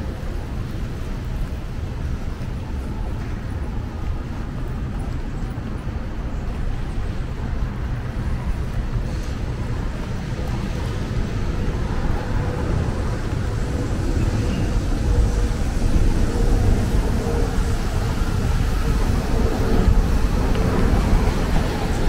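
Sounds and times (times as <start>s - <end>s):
road traffic rumble: 0.0s - 22.0s.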